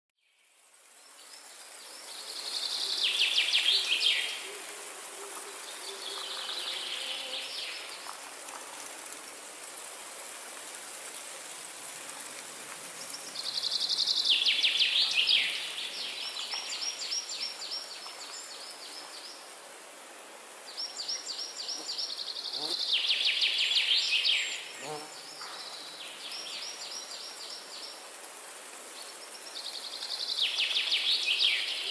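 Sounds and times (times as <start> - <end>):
insects hissing: 21.3 - 25.3.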